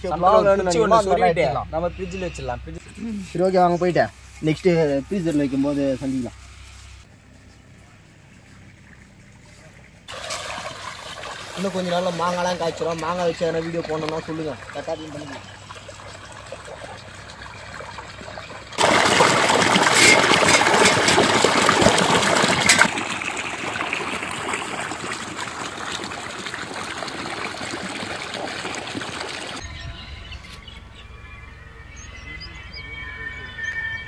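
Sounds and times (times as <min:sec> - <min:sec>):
water gushing from a pipe: 0:10.1 - 0:29.6.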